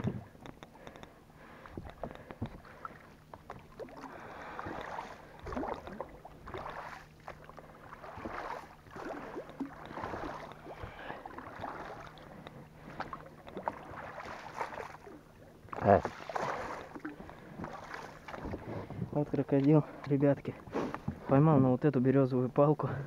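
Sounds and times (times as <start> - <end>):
water splashing against a boat: 0.0 - 21.6
faint low hum: 0.0 - 23.0.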